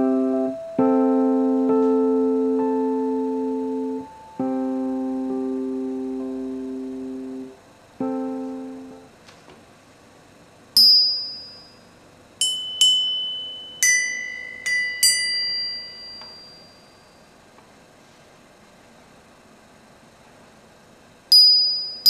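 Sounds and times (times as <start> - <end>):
small bells ringing: 10.8 - 17.4, 21.3 - 22.0.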